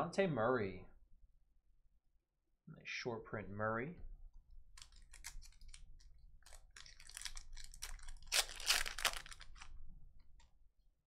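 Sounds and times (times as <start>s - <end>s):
foil wrapper tearing and crinkling: 4.8s - 5.8s, 6.4s - 9.8s.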